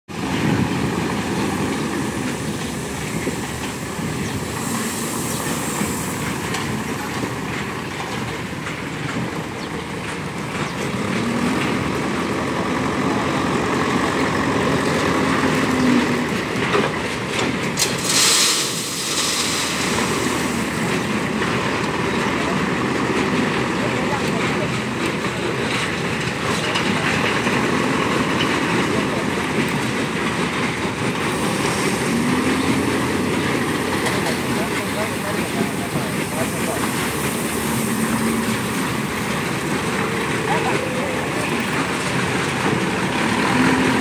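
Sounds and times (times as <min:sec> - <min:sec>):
diesel engine running: 0:00.1 - 0:44.0.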